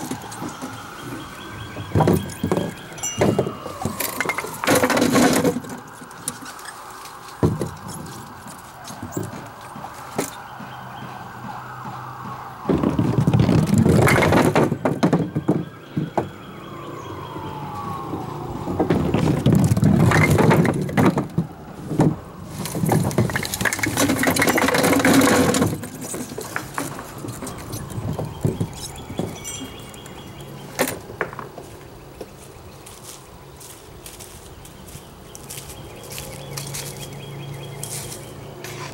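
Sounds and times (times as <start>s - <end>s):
bowling pins clattering: 0.0s - 5.8s.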